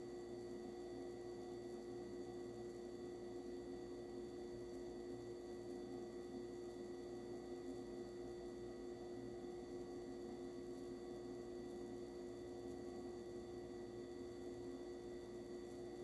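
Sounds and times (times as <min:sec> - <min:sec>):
faint high whine: 0:00.0 - 0:16.0.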